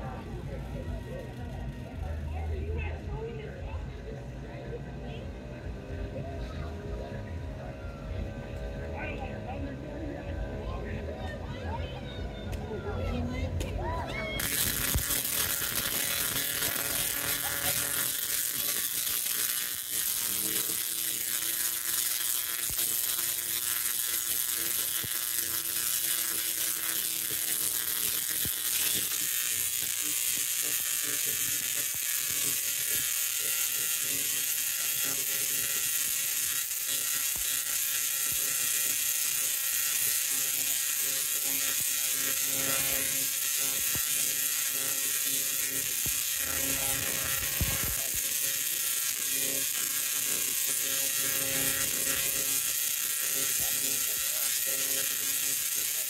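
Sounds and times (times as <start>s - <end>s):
tesla coil buzzing: 14.2s - 56.0s.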